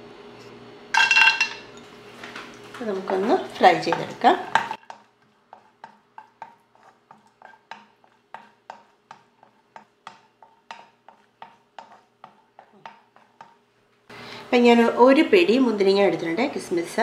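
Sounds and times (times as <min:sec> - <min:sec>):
wooden spatula knocking on pan: 0:03.0 - 0:13.6.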